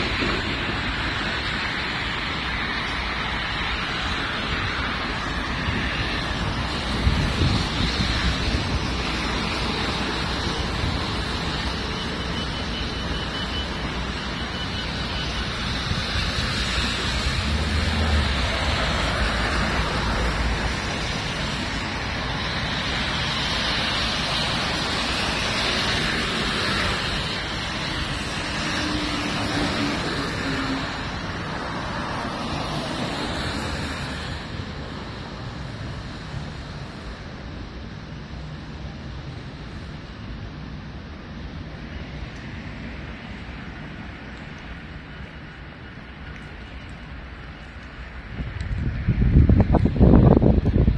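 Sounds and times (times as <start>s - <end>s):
wind buffeting microphone: 0.0s - 12.2s, 43.2s - 50.9s
car tyres hissing on wet road: 0.0s - 50.9s.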